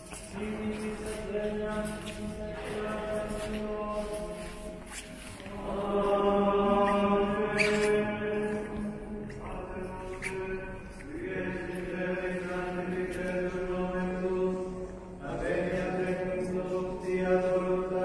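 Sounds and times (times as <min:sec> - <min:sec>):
men chanting: 0:15.2 - 0:18.0.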